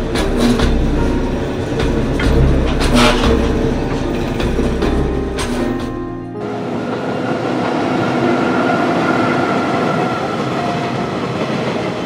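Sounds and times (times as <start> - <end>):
wheel clacks over rail joints: 0.0 - 6.1
freight train rumbling past: 0.0 - 12.0.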